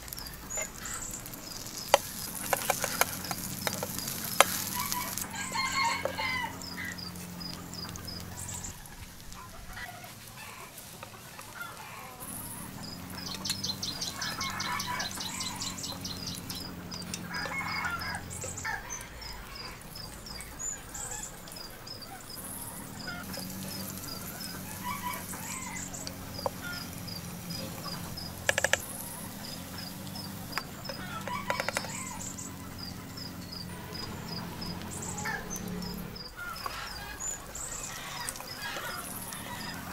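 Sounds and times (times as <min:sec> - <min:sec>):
high repeated chirping: 0:00.0 - 0:09.1
chickens clucking: 0:00.0 - 0:39.9.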